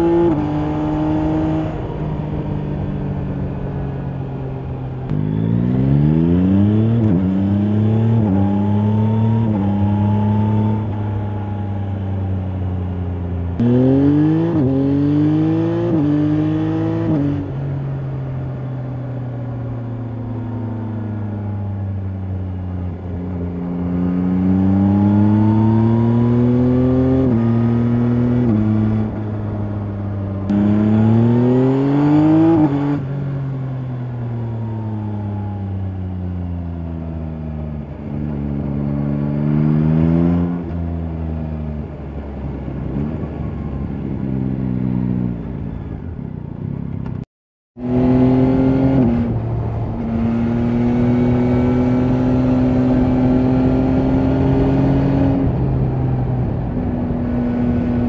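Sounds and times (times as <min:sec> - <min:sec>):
motorcycle engine revving through shifts: 0:00.0 - 0:02.0, 0:05.1 - 0:11.5, 0:13.5 - 0:17.6, 0:22.4 - 0:34.0, 0:37.1 - 0:41.4, 0:47.8 - 0:56.2.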